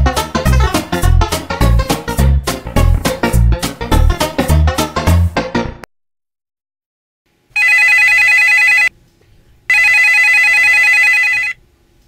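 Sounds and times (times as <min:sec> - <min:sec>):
guitar music: 0:00.0 - 0:05.8
telephone ringing: 0:07.6 - 0:08.9, 0:09.7 - 0:11.6.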